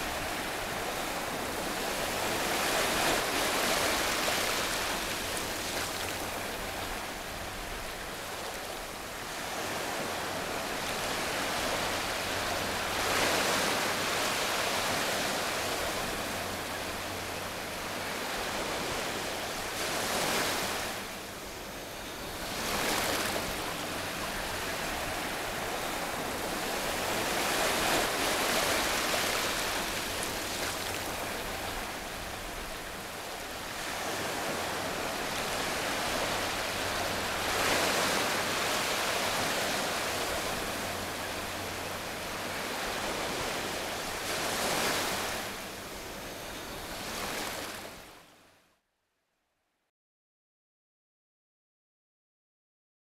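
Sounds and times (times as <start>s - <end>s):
ocean surf washing: 0.0s - 48.1s.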